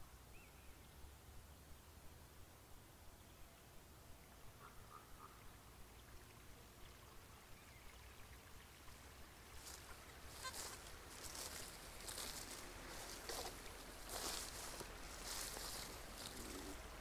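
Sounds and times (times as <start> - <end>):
boots swishing through grass: 9.6 - 17.0.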